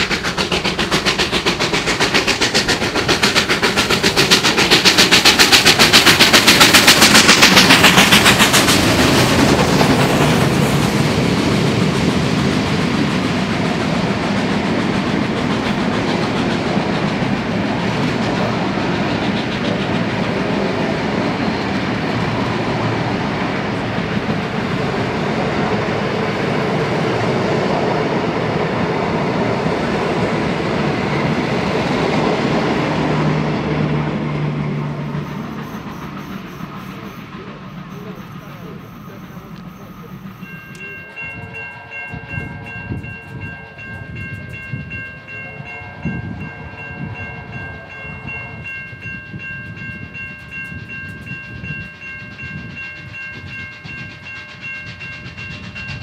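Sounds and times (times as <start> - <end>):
carriages rolling on rails: 0.0 - 56.0
steam locomotive exhaust beats: 0.0 - 56.0.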